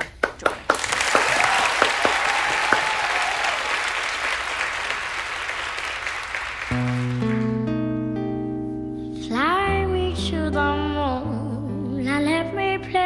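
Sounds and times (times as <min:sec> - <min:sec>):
studio audience applauding: 0:00.0 - 0:07.8.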